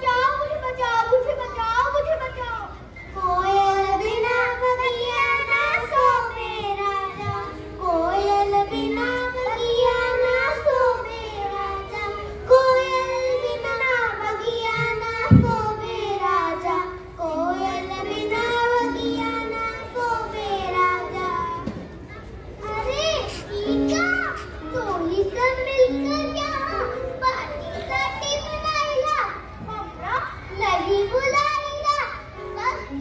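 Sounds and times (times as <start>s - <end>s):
children singing with music: 0.0s - 33.0s
low thump: 15.2s - 15.8s.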